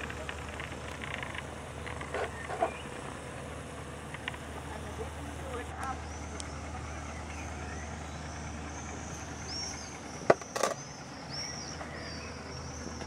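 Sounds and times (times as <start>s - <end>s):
birds chirping: 0.0s - 13.0s
light aircraft engine drone: 0.0s - 13.0s.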